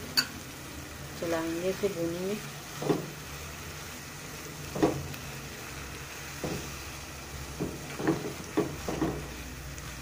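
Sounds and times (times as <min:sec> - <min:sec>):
faint sizzle: 0:00.0 - 0:10.0
spatula stirring in a steel pan: 0:02.6 - 0:10.0
spatula striking pan: 0:07.5 - 0:09.4.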